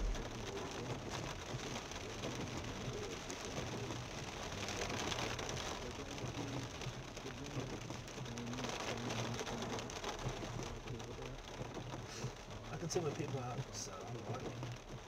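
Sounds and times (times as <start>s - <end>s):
heavy rain on car roof: 0.0s - 15.0s
tyres on wet road: 0.0s - 15.0s.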